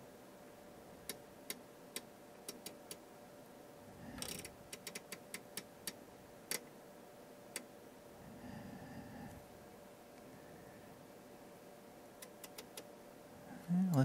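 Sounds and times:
rotary switch detents clicking: 1.0s - 3.0s, 4.2s - 6.7s, 12.2s - 12.9s.

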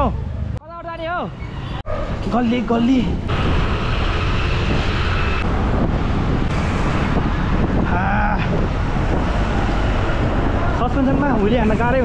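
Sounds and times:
wind rush on microphone: 3.1s - 12.0s.

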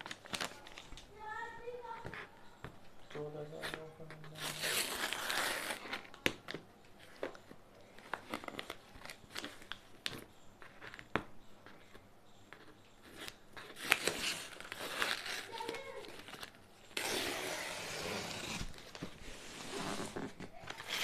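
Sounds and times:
tape and cardboard crinkling: 0.0s - 2.3s, 3.6s - 11.3s, 12.6s - 21.0s
packing tape tearing: 3.7s - 6.2s, 13.0s - 21.0s.

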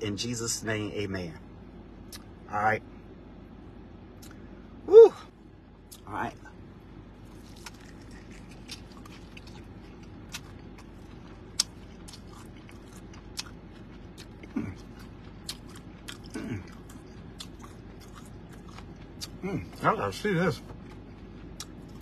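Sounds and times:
crunching chicken wing: 7.2s - 19.4s.

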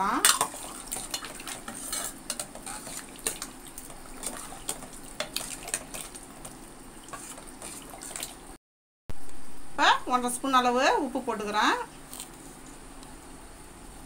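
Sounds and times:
liquid sloshing: 0.2s - 8.6s.

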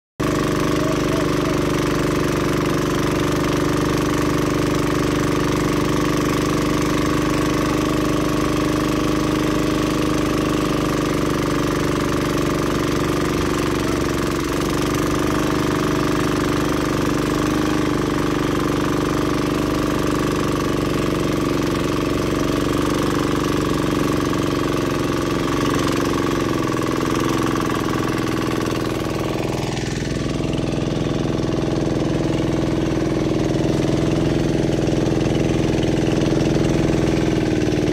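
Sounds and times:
boat engine running: 0.2s - 37.9s
water rushing past hull: 0.2s - 37.9s.

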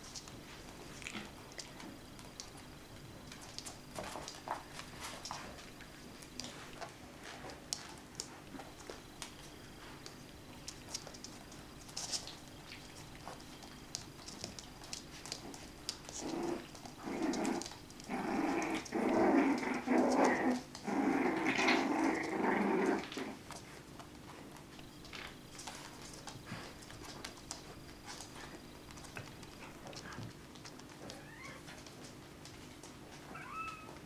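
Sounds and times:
paws clicking on hard floor: 0.0s - 34.0s
dog growling: 16.1s - 23.4s.

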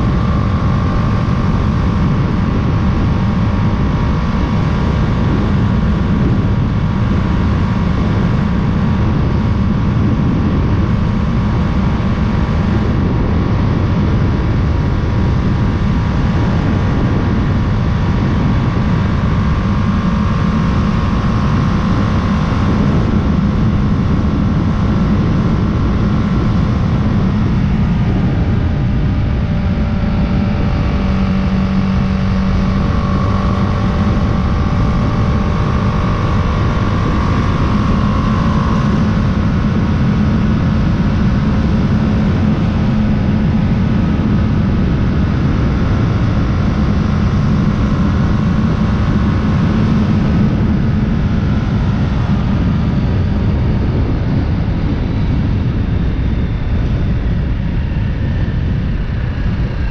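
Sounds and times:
motorcycle engine drone: 0.0s - 59.9s
wind rush on microphone: 0.0s - 59.9s.

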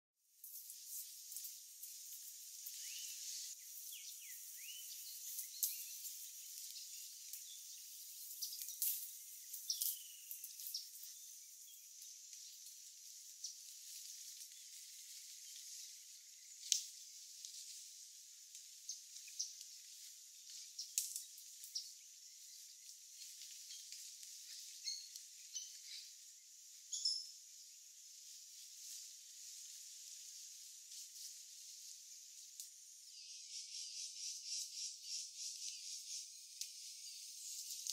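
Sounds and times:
high-pitched hiss: 0.3s - 19.0s
bird chirps: 2.7s - 12.7s, 24.7s - 26.2s, 26.8s - 27.4s, 33.1s - 37.9s.

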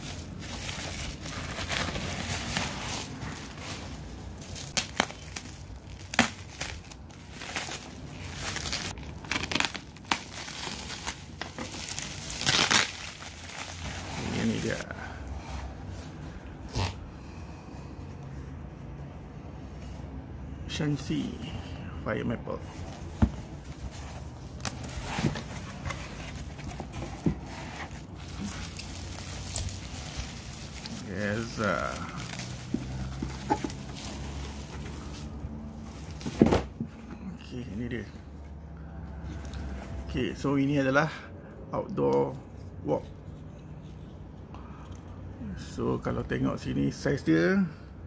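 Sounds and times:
bubble wrap crinkling and tearing: 0.0s - 14.9s, 27.6s - 36.3s.

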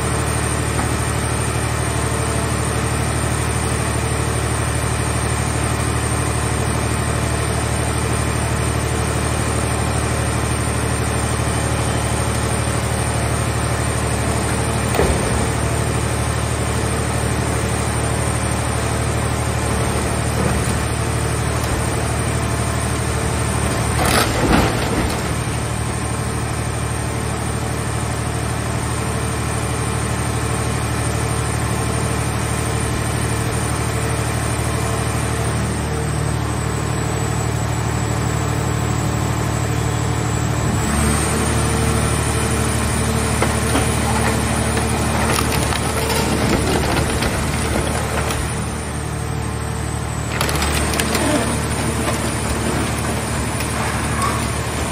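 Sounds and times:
hydraulic baler machine drone: 0.0s - 54.9s
metal crunching: 18.7s - 26.2s, 42.7s - 49.2s, 49.8s - 54.9s.

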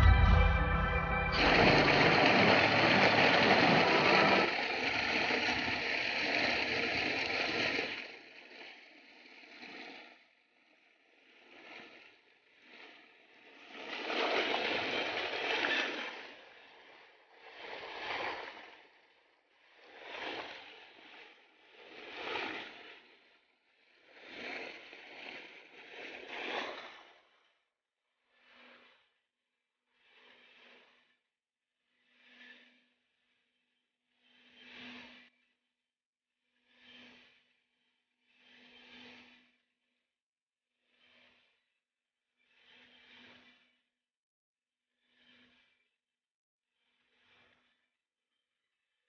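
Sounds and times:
water gushing into tank: 1.4s - 6.6s.

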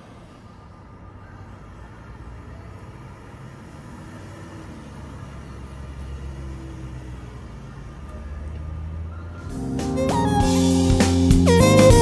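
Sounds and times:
car engine humming: 2.6s - 12.0s.

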